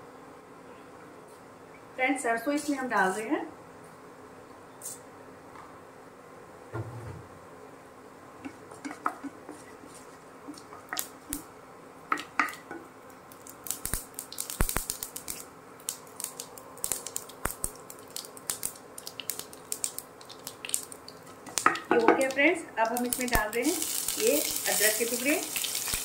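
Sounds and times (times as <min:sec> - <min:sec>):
seeds popping in hot oil: 0:10.5 - 0:11.5, 0:12.1 - 0:26.0.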